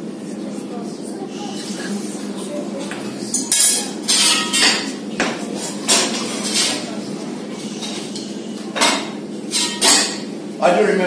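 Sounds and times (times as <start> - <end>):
metal tongs clanking on iron: 3.3 - 4.9, 7.7 - 10.3.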